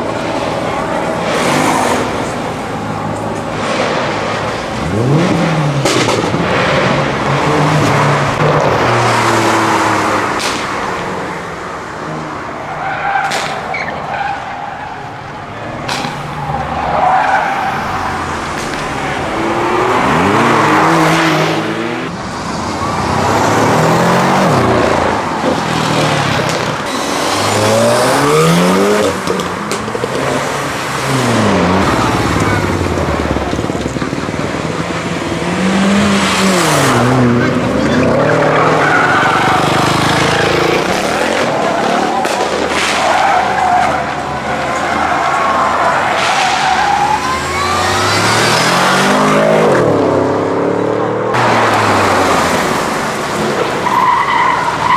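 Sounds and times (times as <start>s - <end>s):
car engines revving: 0.0s - 54.9s
tyres spinning and skidding: 0.0s - 54.9s
sharp cracks: 10.3s - 11.0s, 13.2s - 13.8s, 40.9s - 44.2s.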